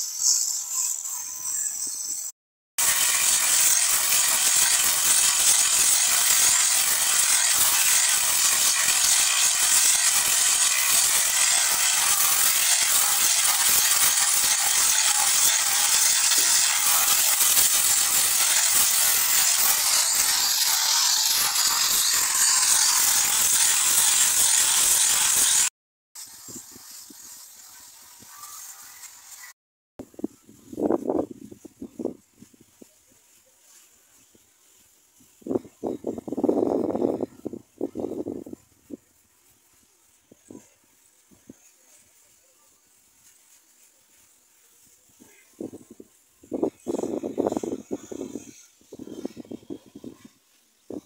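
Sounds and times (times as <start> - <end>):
quiet outdoor background: 0.0 - 23.8, 26.2 - 51.0
paint spray gun hissing: 0.0 - 29.6.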